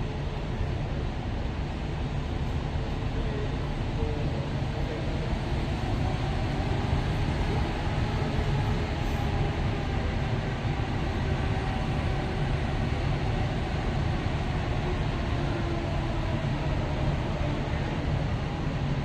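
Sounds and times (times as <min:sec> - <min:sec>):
jet engines low rumble: 0:00.0 - 0:19.0.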